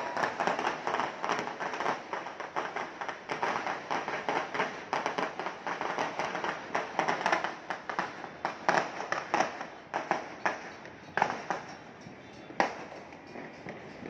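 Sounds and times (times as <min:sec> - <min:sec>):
fireworks bangs and crackles: 0:00.0 - 0:14.0.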